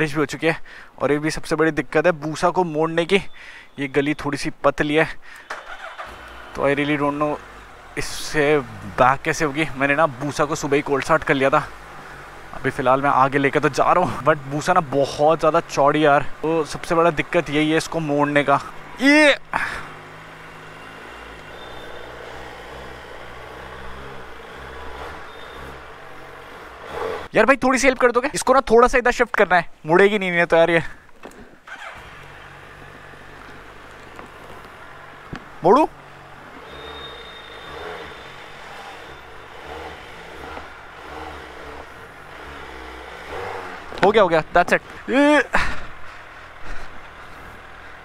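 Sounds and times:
motorcycle engine idling: 31.7s - 48.0s.

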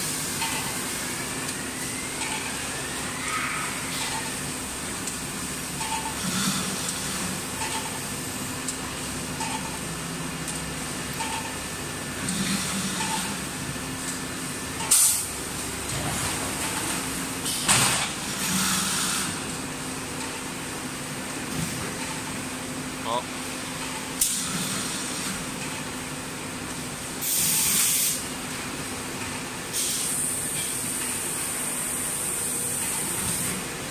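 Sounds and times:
machinery hum: 0.0s - 33.9s.

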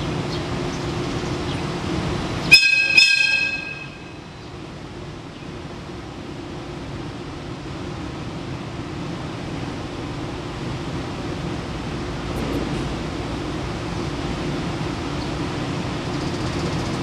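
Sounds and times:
low locomotive hum: 0.0s - 17.0s
locomotive whistle toots: 2.4s - 4.2s.

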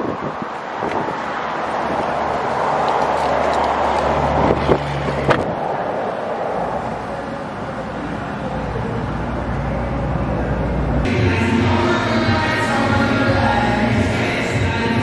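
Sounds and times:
wind on microphone: 0.0s - 7.2s.

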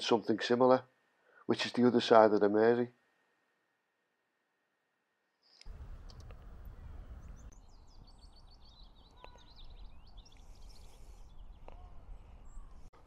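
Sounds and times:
small birds chirping: 5.4s - 13.0s
wind rumble on microphone: 5.7s - 12.9s.

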